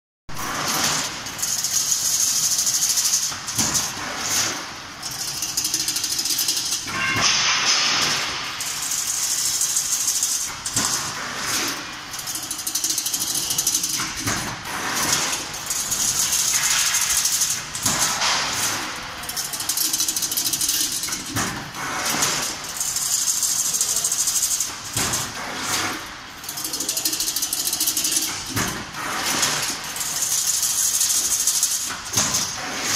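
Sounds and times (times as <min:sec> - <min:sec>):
machine clatter and hiss: 0:00.3 - 0:32.9
sharp metal clanks: 0:05.0 - 0:23.1.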